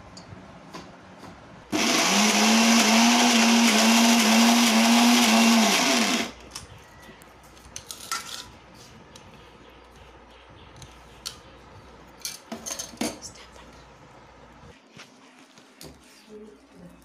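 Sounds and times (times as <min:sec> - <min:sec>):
mixer grinder motor: 0:01.7 - 0:06.4.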